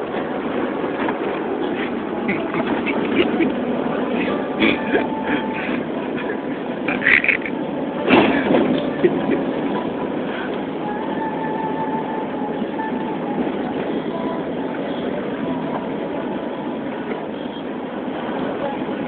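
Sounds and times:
vehicle running noise from inside: 0.0 - 19.0.

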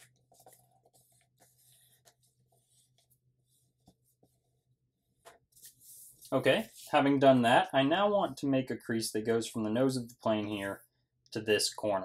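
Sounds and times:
paper rustling and creasing: 0.0 - 6.9.

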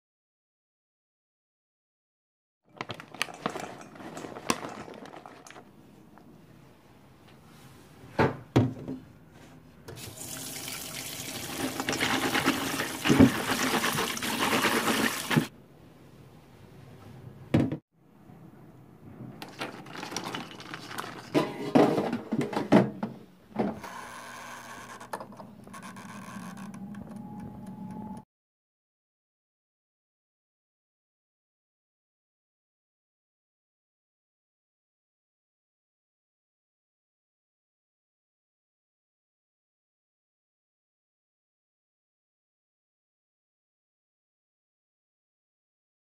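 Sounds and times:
tap water running into metal bowl: 9.9 - 15.5
walnuts rattling in metal sieve: 19.5 - 21.4.

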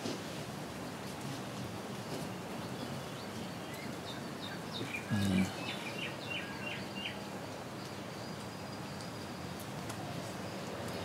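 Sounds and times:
background hiss: 0.0 - 11.0
small birds chirping: 2.5 - 11.0
low hum from a voice: 5.0 - 5.7.

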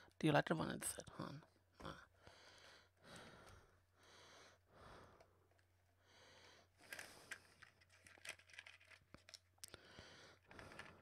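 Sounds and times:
crinkling candy packaging: 6.8 - 11.0.

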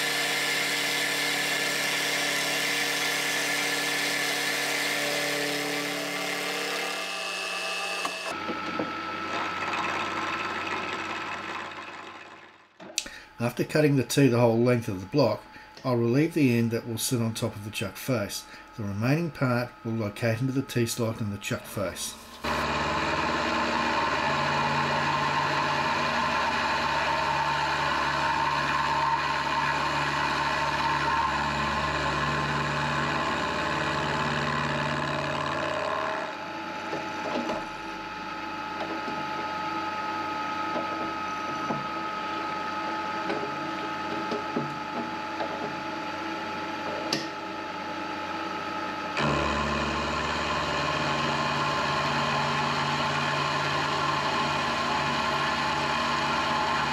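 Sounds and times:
metal cutting noise: 0.0 - 8.4, 19.4 - 36.4, 49.2 - 56.9
milling machine motor hum: 0.0 - 13.0, 20.4 - 56.9.

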